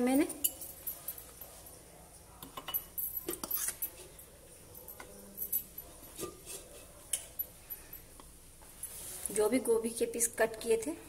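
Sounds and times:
fork clinking and scraping plate: 0:02.5 - 0:04.2, 0:06.1 - 0:07.4.

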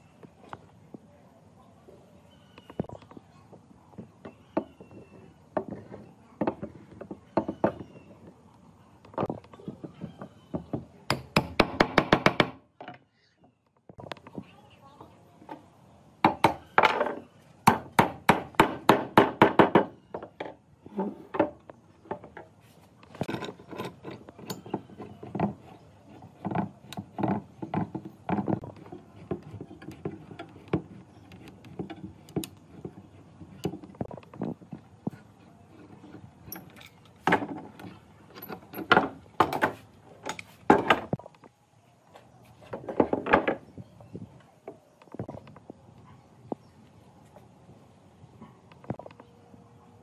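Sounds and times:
scraping on wood: 0:19.9 - 0:41.2.

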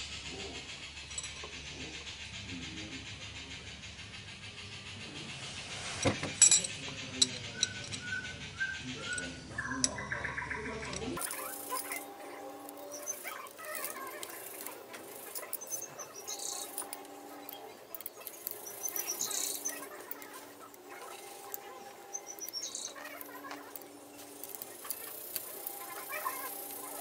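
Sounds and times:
small birds chirping: 0:06.8 - 0:27.0
faint clicks of metal tools: 0:10.8 - 0:27.0.

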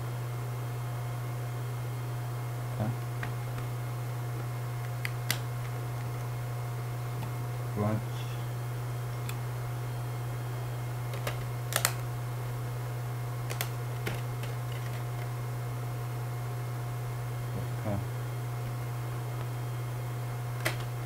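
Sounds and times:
low electrical hum: 0:00.0 - 0:21.0
plastic case clicks: 0:11.1 - 0:12.0, 0:13.5 - 0:15.3, 0:20.6 - 0:21.0.

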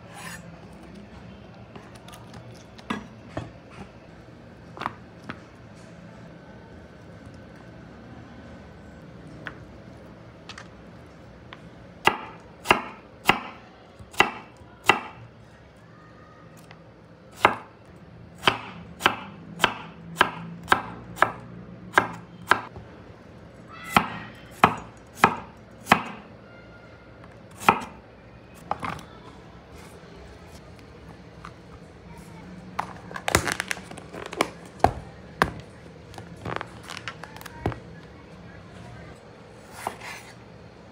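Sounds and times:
knife chopping on cutting board: 0:12.1 - 0:15.2, 0:24.0 - 0:26.2.

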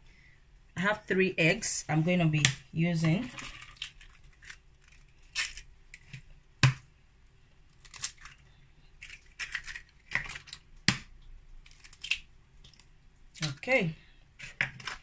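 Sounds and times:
eggshells crackling and rustling: 0:02.4 - 0:06.7, 0:07.5 - 0:15.0
eggs cracking against plastic bowl: 0:07.8 - 0:13.8, 0:14.4 - 0:15.0.

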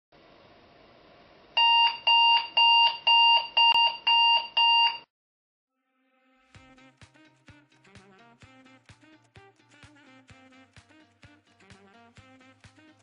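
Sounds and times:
digital alarm clock beeping: 0:01.6 - 0:05.1.

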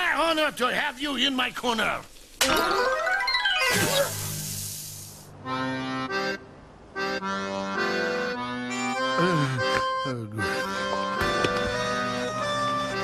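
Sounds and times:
hiss-like rush: 0:03.7 - 0:05.4
accordion music: 0:05.3 - 0:13.0.

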